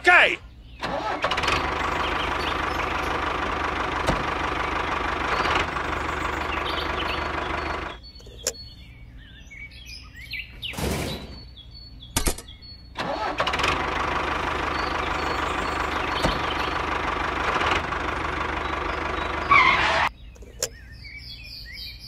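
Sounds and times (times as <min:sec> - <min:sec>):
birds chirping faintly: 0:00.0 - 0:22.0
toy tractor motor running: 0:00.9 - 0:08.0.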